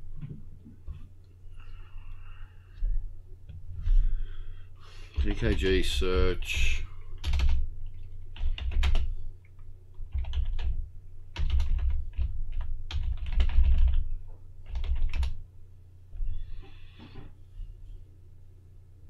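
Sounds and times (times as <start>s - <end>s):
typing on computer keyboard: 7.2s - 9.1s, 10.1s - 15.4s.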